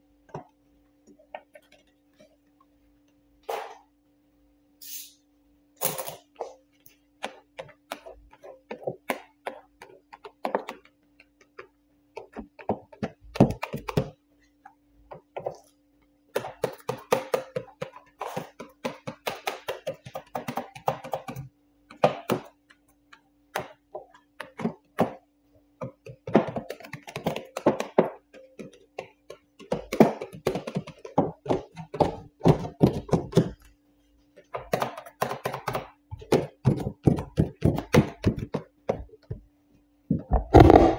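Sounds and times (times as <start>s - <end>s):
faint steady hum: 0.0s - 40.9s
hands and squeegee clicking tapping: 7.1s - 15.6s, 16.3s - 33.7s, 34.4s - 39.5s.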